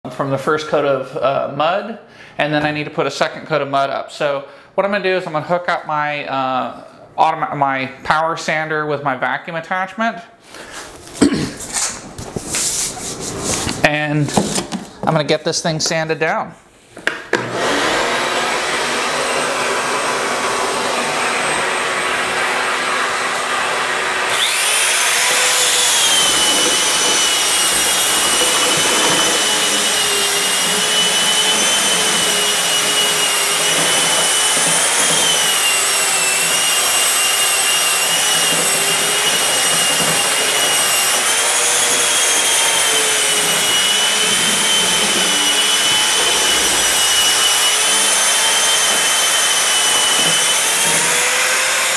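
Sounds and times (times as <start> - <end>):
power sander motor: 17.4 - 51.9.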